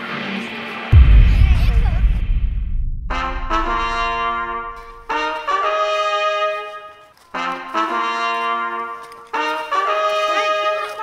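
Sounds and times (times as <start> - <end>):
trumpets playing held chords: 3.6 - 10.4.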